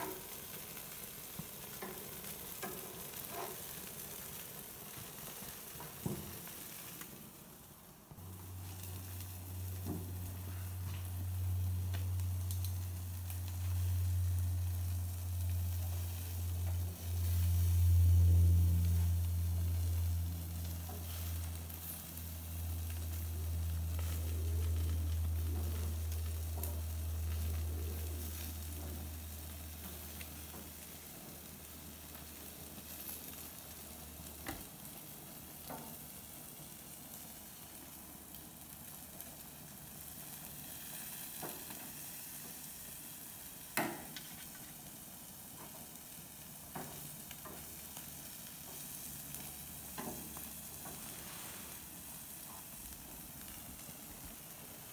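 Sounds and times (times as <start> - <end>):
steady low hum: 0.0 - 36.0
fish sizzling on a grill: 0.0 - 54.9.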